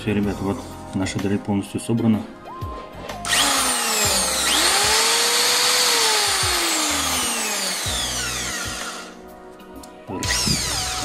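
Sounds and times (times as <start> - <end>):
drill motor winding down: 3.2 - 9.2, 10.2 - 11.0.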